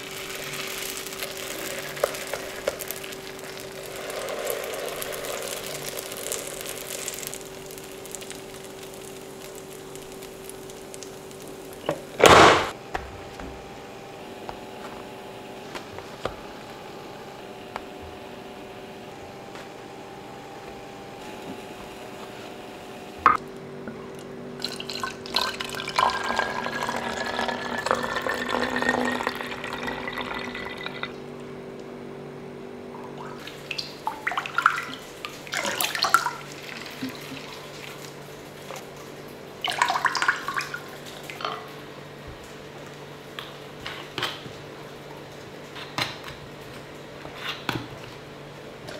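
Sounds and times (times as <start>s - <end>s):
juice pouring into plastic bottle: 0.0s - 12.2s, 24.6s - 31.2s, 39.6s - 41.4s.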